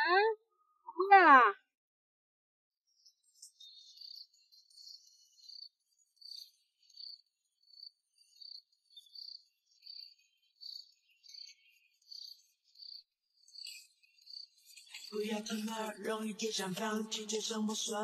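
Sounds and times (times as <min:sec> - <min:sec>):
faint high-pitched insect chirping: 0:02.9 - 0:15.2.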